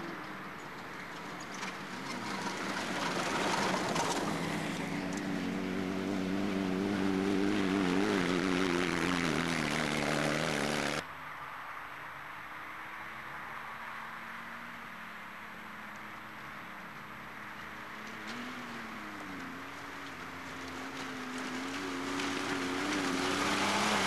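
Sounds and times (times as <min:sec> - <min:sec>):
engine revving hard: 0:02.9 - 0:11.0, 0:22.2 - 0:24.0.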